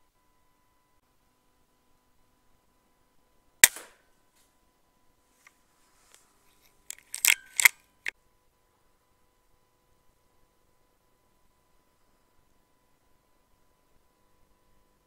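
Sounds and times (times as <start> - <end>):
air rifle firing: 3.6 - 4.0, 6.9 - 7.7
rifle lever metallic clicks: 6.9 - 7.8.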